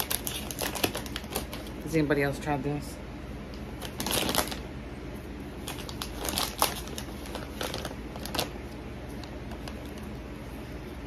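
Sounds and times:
scissors cutting bag: 0.0s - 1.7s
snack bag crinkling: 0.0s - 1.9s, 3.8s - 4.7s, 5.6s - 10.3s.

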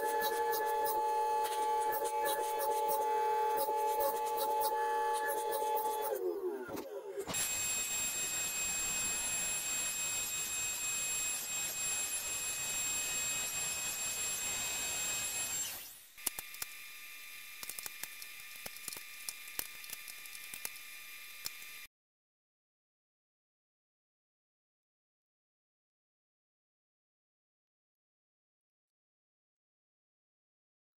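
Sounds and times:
workshop machine whining hiss: 0.0s - 15.9s.

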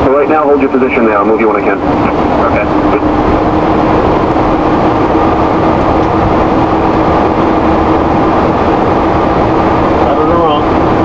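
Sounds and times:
aircraft cabin rush: 0.0s - 11.0s
steady aircraft hum: 0.0s - 11.0s.

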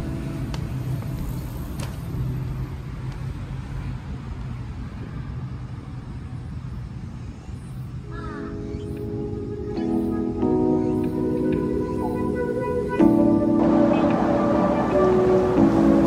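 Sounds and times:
car traffic rumble: 0.0s - 16.0s.

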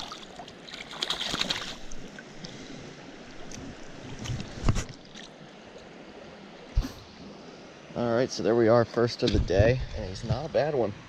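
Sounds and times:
splashing in water: 0.0s - 2.0s
stream rushing: 0.0s - 8.8s.

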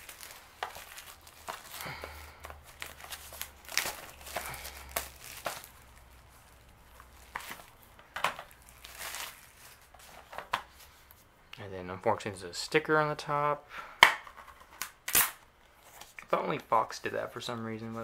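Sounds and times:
plastic shrink wrap crinkling and tearing: 0.0s - 11.1s, 14.8s - 15.4s.

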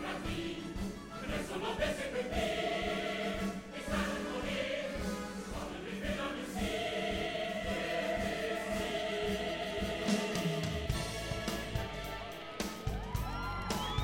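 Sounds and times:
choir singing long held notes: 0.0s - 13.0s
orchestra playing: 8.2s - 14.0s.

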